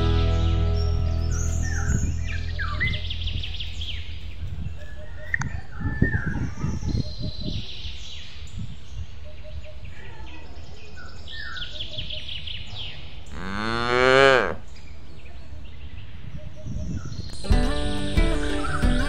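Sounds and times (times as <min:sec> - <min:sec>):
birds chirping: 0:00.0 - 0:13.8, 0:14.5 - 0:19.0
cow mooing: 0:13.3 - 0:14.6.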